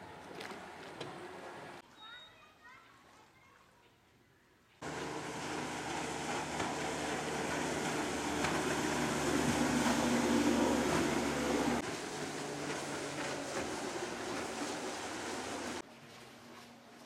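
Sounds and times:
water rushing along hull: 0.0s - 1.8s, 4.8s - 17.0s
speedboat outboard motor at full speed: 4.8s - 16.4s.

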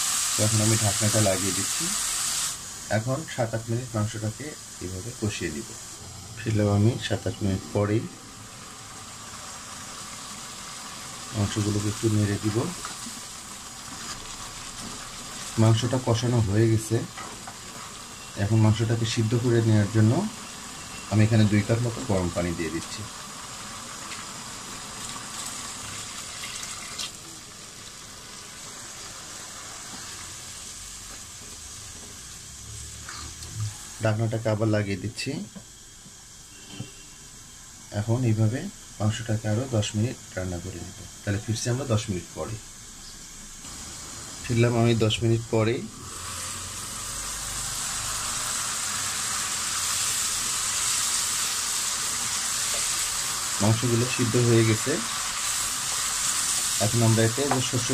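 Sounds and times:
beef sizzling: 0.0s - 57.9s
pot bubbling: 4.0s - 33.8s, 45.5s - 57.9s
water pouring into a pot: 21.6s - 30.4s, 46.0s - 57.9s.

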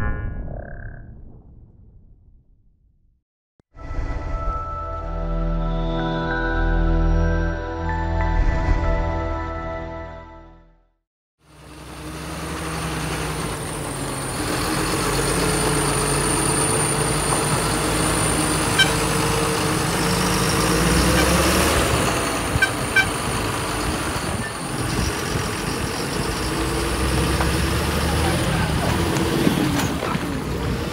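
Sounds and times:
tractor diesel engine running: 11.4s - 30.9s.

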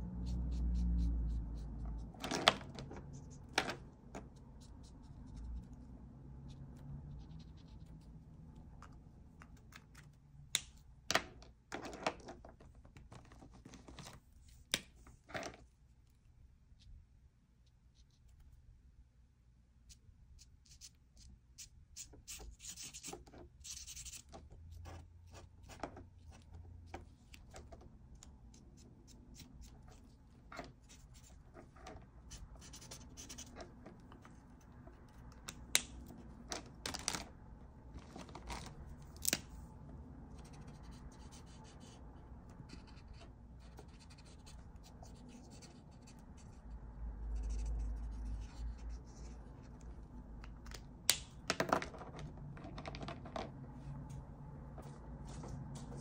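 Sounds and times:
marker scratching on paper: 0.2s - 5.8s, 6.4s - 8.2s, 19.9s - 26.6s, 28.5s - 35.2s, 40.3s - 49.8s.

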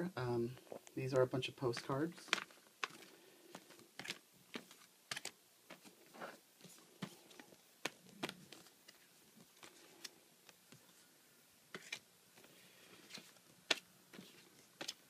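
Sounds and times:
postcards clicking and tapping: 1.7s - 5.9s, 6.6s - 10.8s, 11.7s - 15.0s.

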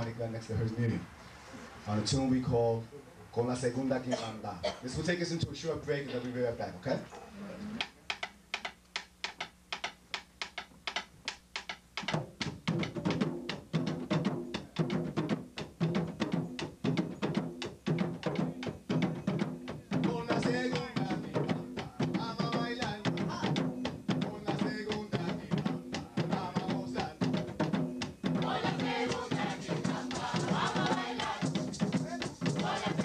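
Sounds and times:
hand-played barrel drums: 7.8s - 33.0s.

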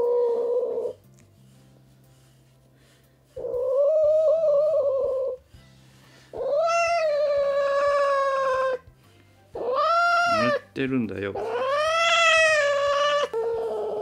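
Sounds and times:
cat yowling: 0.0s - 1.0s, 3.4s - 5.4s, 6.3s - 8.8s, 9.6s - 10.6s, 11.4s - 14.0s
quiet background music: 0.0s - 14.0s.

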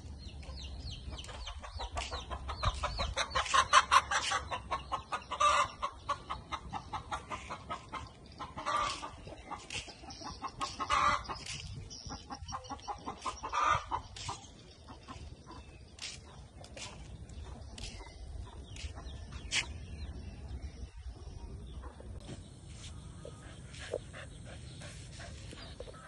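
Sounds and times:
chicken clucking: 0.4s - 20.1s.

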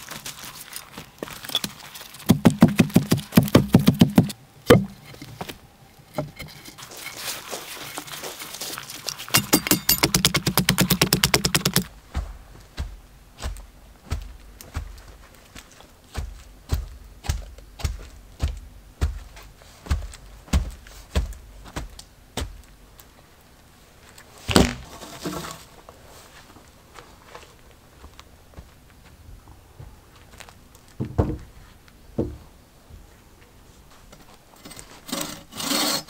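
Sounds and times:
wooden pole tamping earth thuds: 1.5s - 5.6s, 9.3s - 15.2s, 16.1s - 22.7s, 24.5s - 25.6s.

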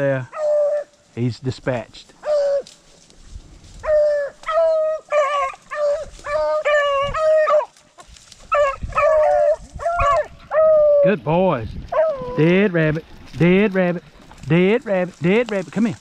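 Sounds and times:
dogs baying: 0.3s - 0.9s, 2.2s - 2.7s, 3.8s - 7.8s, 8.4s - 11.1s, 11.9s - 12.5s.

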